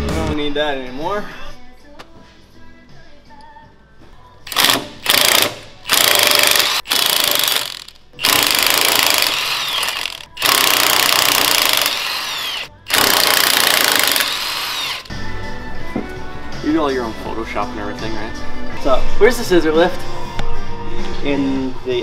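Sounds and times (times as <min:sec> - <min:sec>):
impact wrench hammering bolts: 0:04.5 - 0:12.3, 0:12.9 - 0:15.1.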